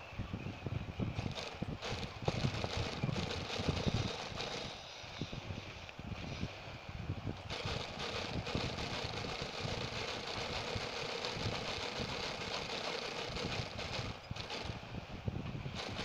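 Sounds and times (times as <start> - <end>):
industrial sewing machine running: 1.2 - 4.8, 7.5 - 14.8, 15.8 - 16.0.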